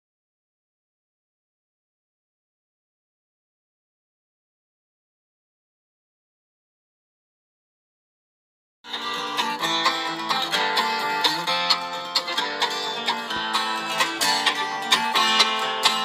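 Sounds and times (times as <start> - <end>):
plucked string bluegrass music: 8.9 - 16.0.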